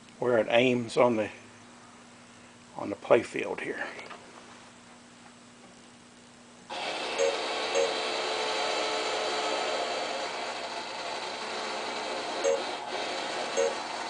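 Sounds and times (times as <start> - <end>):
pinball machine whir and hum: 6.7 - 14.0
electronic blips: 7.2 - 8.1, 12.4 - 12.8, 13.6 - 13.8.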